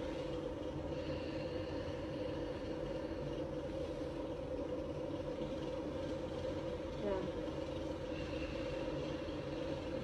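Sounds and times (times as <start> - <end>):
room noise hum: 0.0 - 10.0.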